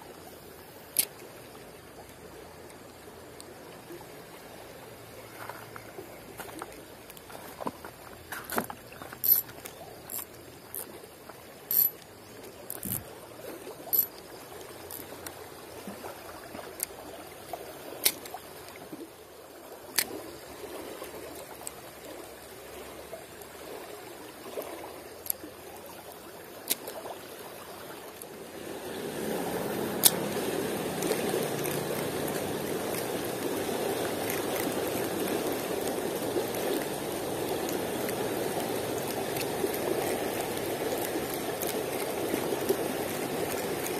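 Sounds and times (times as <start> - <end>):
rocky stream flowing: 0.0 - 43.9
sharp clicks: 12.7 - 13.0.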